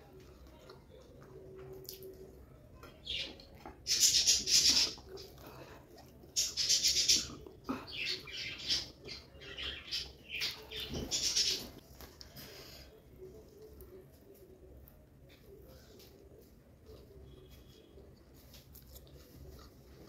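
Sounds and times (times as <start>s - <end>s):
wet chewing and lip smacking: 0.2s - 2.4s, 4.8s - 6.4s.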